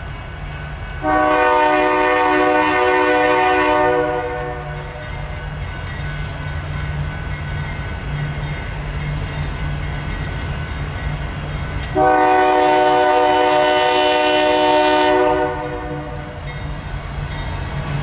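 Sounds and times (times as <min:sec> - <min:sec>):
muffled locomotive air horn: 0:01.0 - 0:04.8, 0:12.0 - 0:16.2.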